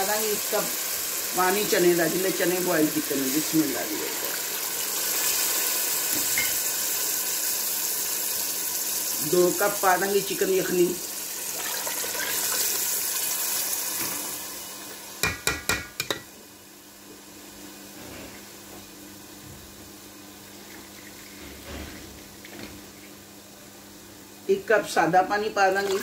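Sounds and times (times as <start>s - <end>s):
stock pouring into a pot: 11.3s - 14.3s.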